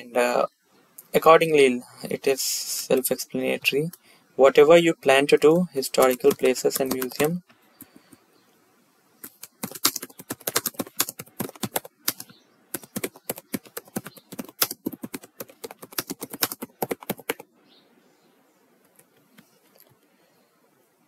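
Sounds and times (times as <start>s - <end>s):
keyboard typing: 5.7s - 8.2s, 9.2s - 17.5s.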